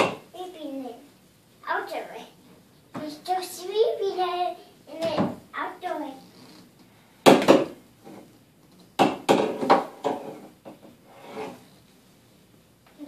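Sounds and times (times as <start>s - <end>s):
broom sweeping wooden floor: 11.1s - 11.8s.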